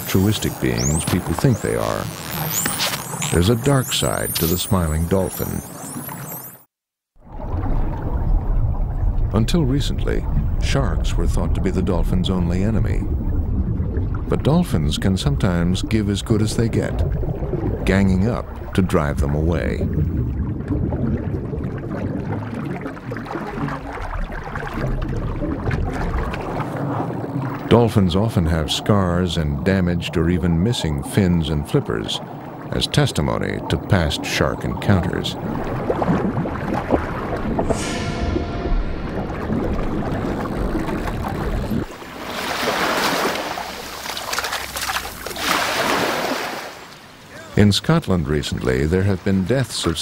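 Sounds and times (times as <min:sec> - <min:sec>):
water bubbling: 0:00.0 - 0:06.5, 0:07.2 - 0:49.3
low underwater rumble: 0:07.2 - 0:27.7, 0:32.2 - 0:42.2
waves washing onto beach: 0:35.8 - 0:47.6.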